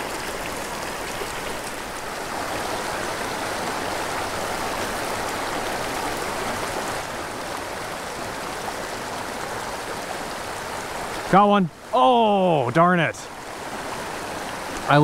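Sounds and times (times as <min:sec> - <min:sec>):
stream running over stones: 0:00.0 - 0:15.0.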